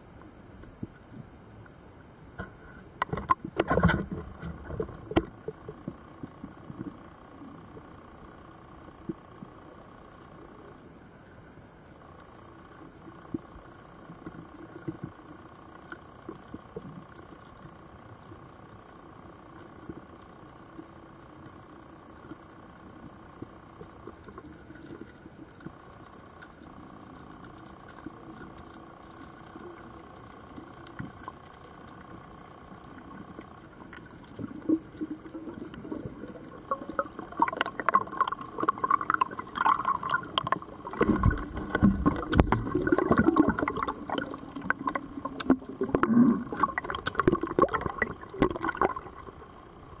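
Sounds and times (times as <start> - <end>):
faint steady hum: 0.0 - 50.0
underwater bubbling and gurgling: 0.0 - 50.0
water sloshing and splashing: 34.6 - 49.4.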